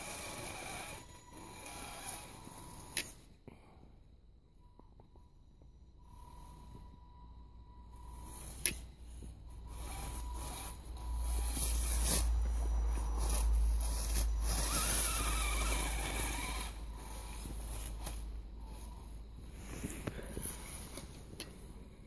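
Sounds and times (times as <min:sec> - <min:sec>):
electric motor whining: 0:00.0 - 0:03.2, 0:07.9 - 0:21.3
tyres crunching in snow: 0:07.9 - 0:22.0.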